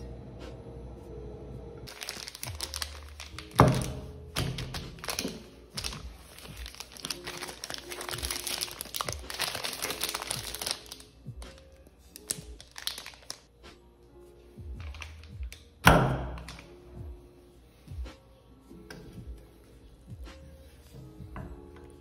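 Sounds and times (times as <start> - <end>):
background music: 0.0 - 22.0
crinkling and rustling: 1.9 - 11.0, 12.2 - 13.5.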